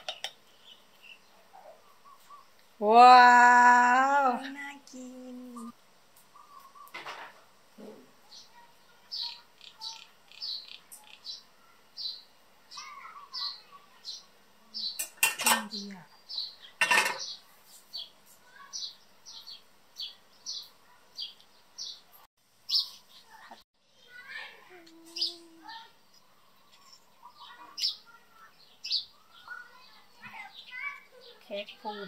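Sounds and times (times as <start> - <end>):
small bird chirping: 0.0 - 2.7, 5.4 - 7.1, 7.8 - 32.0
cutlery clinking against plate: 15.0 - 15.7, 16.8 - 17.3.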